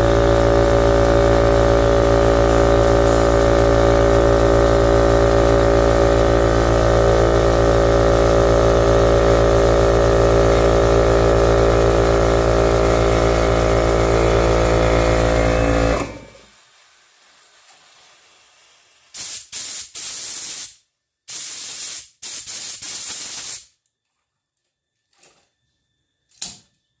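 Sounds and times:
air compressor running: 0:00.0 - 0:16.9
click: 0:26.3 - 0:26.6.

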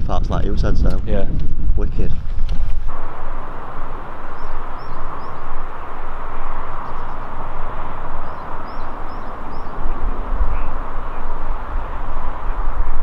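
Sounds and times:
wind rumbling on microphone: 0:00.0 - 0:13.0
small bird chirping: 0:03.8 - 0:12.0.

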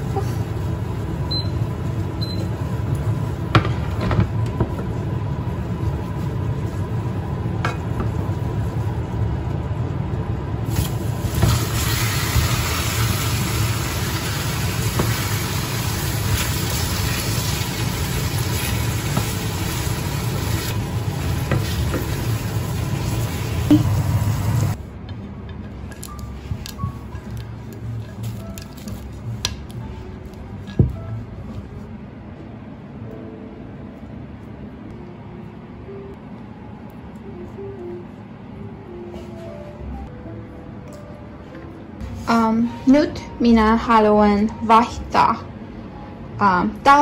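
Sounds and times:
caramel sizzling in a frying pan: 0:10.7 - 0:24.8.

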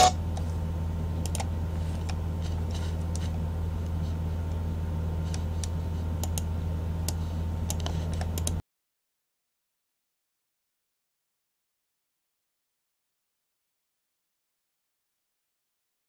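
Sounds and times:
low electrical hum: 0:00.0 - 0:08.6
mouse and keyboard clicks: 0:07.1 - 0:08.6.

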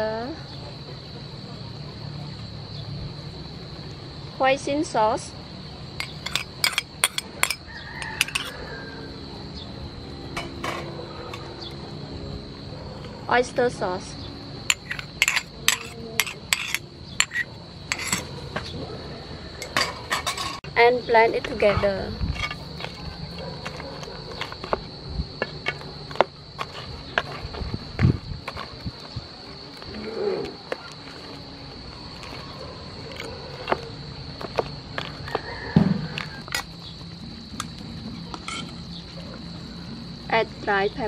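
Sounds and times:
high insect drone: 0:00.0 - 0:41.0
spoon clinking on ceramic bowl: 0:06.0 - 0:08.5
spatula knocking and scraping pan: 0:06.0 - 0:08.6, 0:14.7 - 0:18.3.

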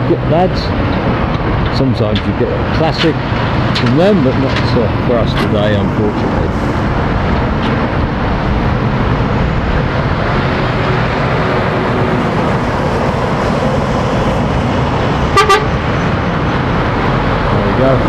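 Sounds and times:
lorries driving: 0:00.0 - 0:18.0
lorry horn toots: 0:15.3 - 0:15.8.

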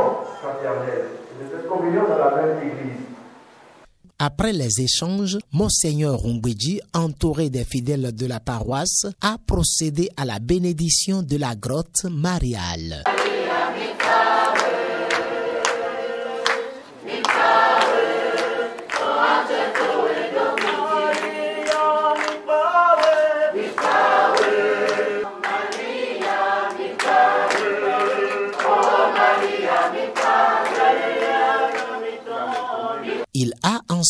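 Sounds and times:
group singing a hymn: 0:13.1 - 0:33.3.

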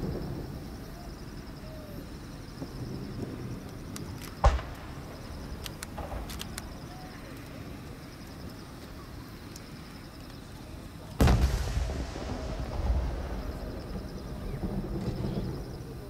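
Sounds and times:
firework boom with rolling echo: 0:00.0 - 0:06.8, 0:11.2 - 0:16.0
faint crackling pops: 0:02.6 - 0:07.6.

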